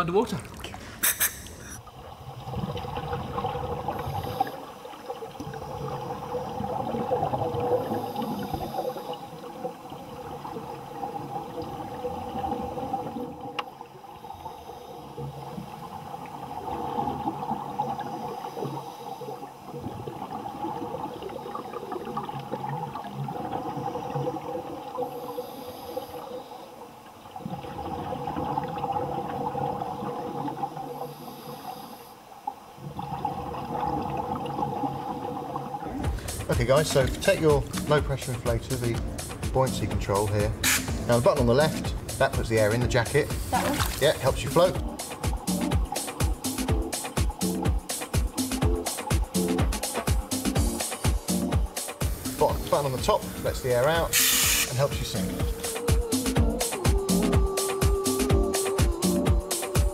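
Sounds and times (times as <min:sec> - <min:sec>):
exhaled air bubbling underwater: 0:00.0 - 0:59.9.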